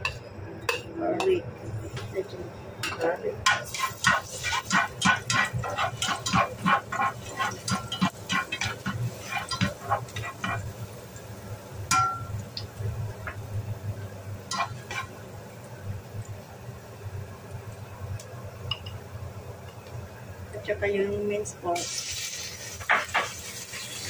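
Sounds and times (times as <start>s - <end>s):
low steady hum: 0.0s - 21.8s
garlic frying in oil: 0.0s - 24.0s
spatula scraping frying pan: 3.4s - 10.8s, 14.5s - 15.2s, 22.7s - 24.0s.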